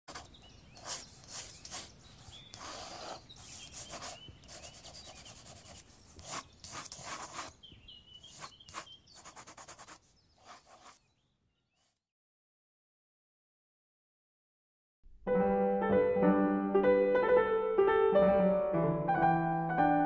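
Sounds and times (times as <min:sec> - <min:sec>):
pencil scratching on paper: 0:00.1 - 0:07.6, 0:08.2 - 0:11.0
bird chirps: 0:00.1 - 0:11.9.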